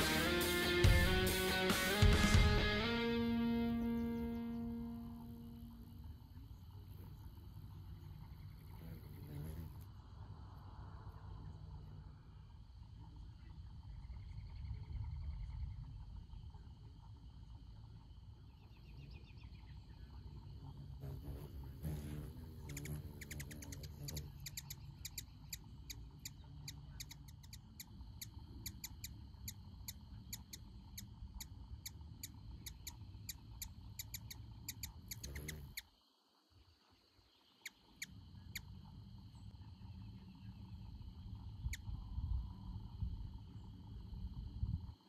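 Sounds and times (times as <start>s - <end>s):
high-pitched chirps: 22.7s - 35.8s.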